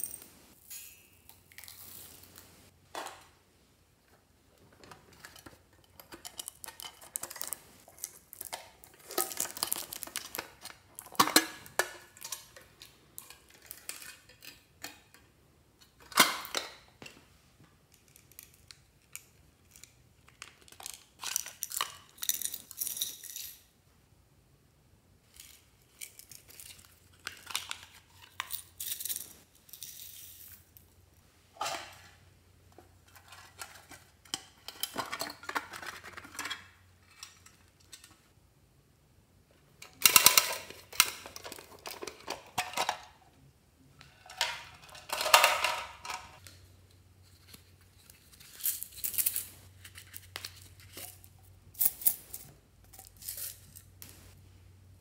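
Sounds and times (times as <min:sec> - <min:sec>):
toy boxes clicking and rattling: 0:04.9 - 0:14.8, 0:18.0 - 0:23.6, 0:33.0 - 0:38.2, 0:39.8 - 0:43.2, 0:44.2 - 0:46.4, 0:47.4 - 0:53.9.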